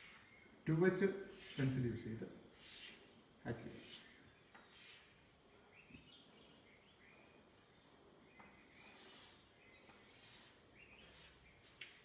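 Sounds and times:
faint high-pitched hum: 0:00.0 - 0:12.0
chalk scratching on blackboard: 0:01.3 - 0:01.9, 0:02.5 - 0:05.2, 0:08.8 - 0:09.4, 0:10.0 - 0:12.0.

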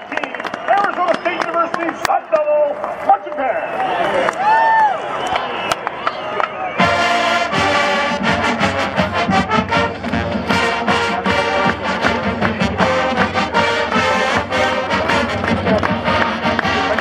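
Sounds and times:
brass carrying the tune: 0:06.8 - 0:17.0
steady drum beat: 0:06.8 - 0:17.0.

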